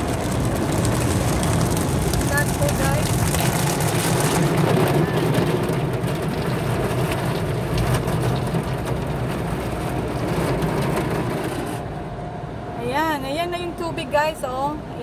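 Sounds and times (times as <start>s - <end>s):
car wash spray drumming on car: 0.0s - 11.8s.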